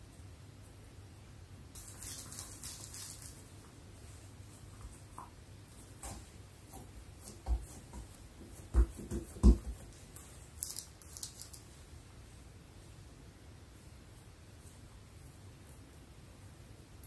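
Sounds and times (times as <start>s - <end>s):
paper rustling: 1.8s - 3.5s, 10.1s - 11.7s
hands patting dough: 4.8s - 11.7s.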